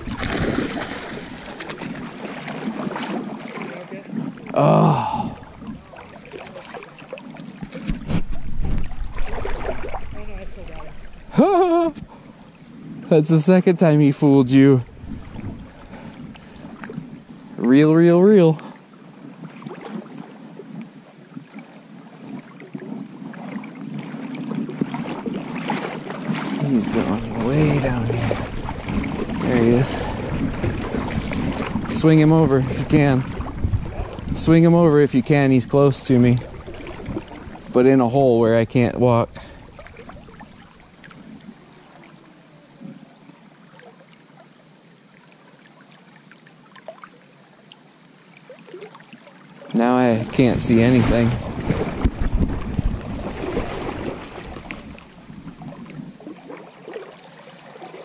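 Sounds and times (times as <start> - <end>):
river water splashing: 0.0 - 58.0.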